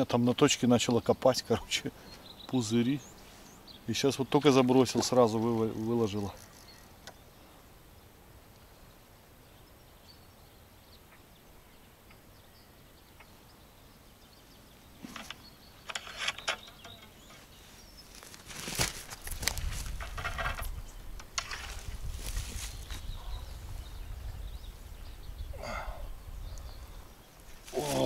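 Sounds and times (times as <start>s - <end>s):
steady low hiss: 0.0s - 28.0s
rustling of rod and clothing: 14.9s - 23.4s, 27.4s - 28.0s.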